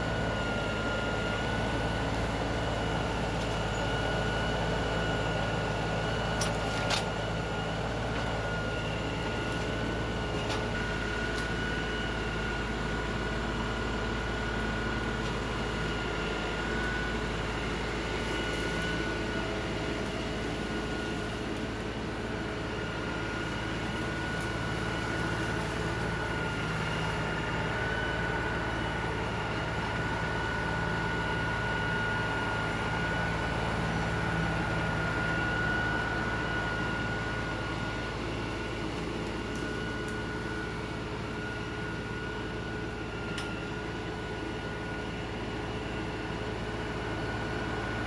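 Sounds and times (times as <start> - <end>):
high steady whine: 0.0 - 48.0
tractor diesel engine running: 0.0 - 48.0
hydraulic grapple in brush: 7.9 - 31.6.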